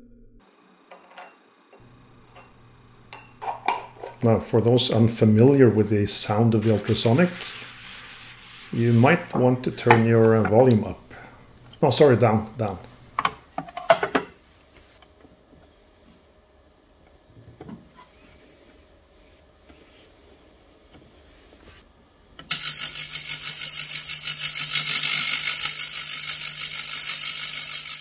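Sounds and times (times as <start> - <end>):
low hum: 0.0 - 0.5
ultrasonic cleaner buzzing: 22.5 - 28.0.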